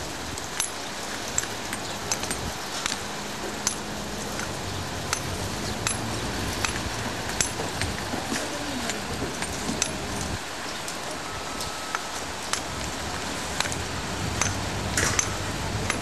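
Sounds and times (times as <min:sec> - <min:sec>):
hand tools striking stone: 0:05.1 - 0:10.0, 0:14.4 - 0:16.0.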